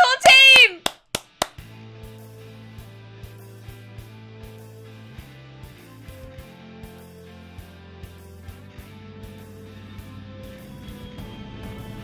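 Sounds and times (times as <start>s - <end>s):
hand claps: 0.0s - 1.7s
soft music with low chord: 1.6s - 12.0s.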